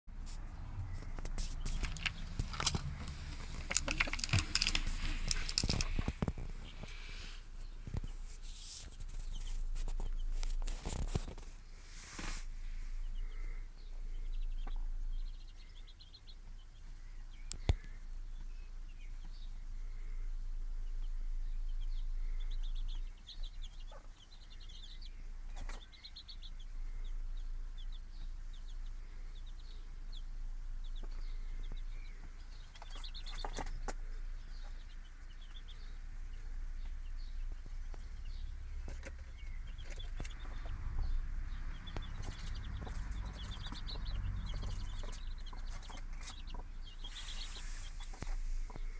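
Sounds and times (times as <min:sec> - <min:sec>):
chicks peeping: 0:00.1 - 0:48.9
hen clucking: 0:22.2 - 0:24.8, 0:30.9 - 0:48.9.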